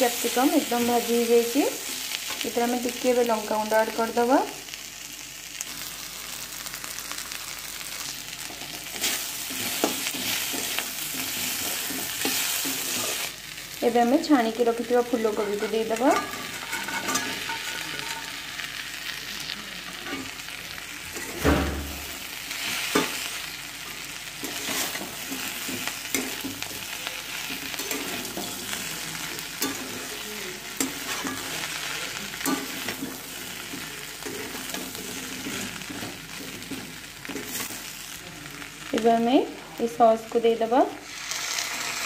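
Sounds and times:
food sizzling in pan: 0.0s - 42.0s
spatula scraping metal pan: 15.1s - 18.3s.

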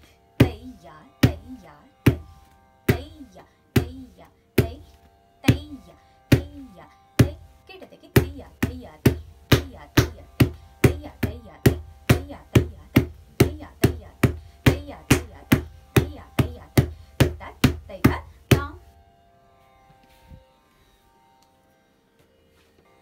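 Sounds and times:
bare feet stamping on wooden floor: 2.1s - 2.3s, 2.9s - 3.1s, 8.2s - 18.8s.

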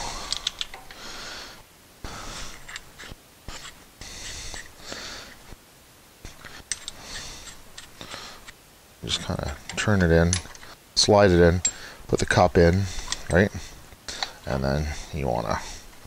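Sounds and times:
breath puffs through the nose: 3.5s - 5.5s.

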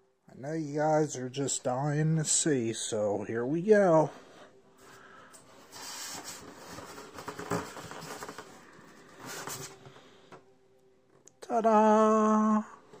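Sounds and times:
styrofoam lid and cardboard box rustling: 5.7s - 9.8s.

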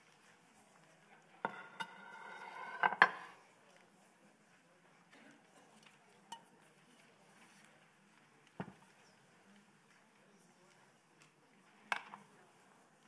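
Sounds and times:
dishes clattering: 1.5s - 3.4s.

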